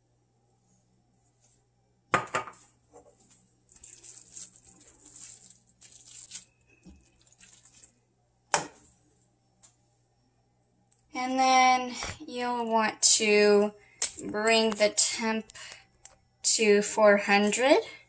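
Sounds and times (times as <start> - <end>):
spatula scraping food in pan: 3.7 - 7.9.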